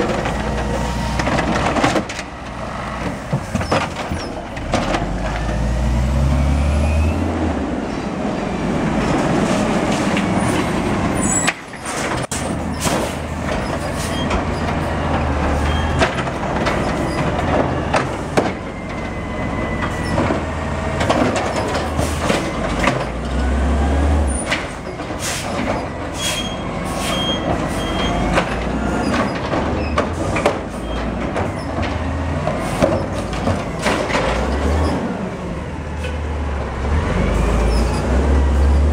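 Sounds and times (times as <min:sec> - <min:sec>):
carts clattering and banging: 0:00.0 - 0:06.2, 0:08.9 - 0:35.3
diesel truck engine revving: 0:04.4 - 0:11.3, 0:19.3 - 0:24.6, 0:31.9 - 0:38.9
hydraulic arm lifting carts: 0:09.0 - 0:38.9.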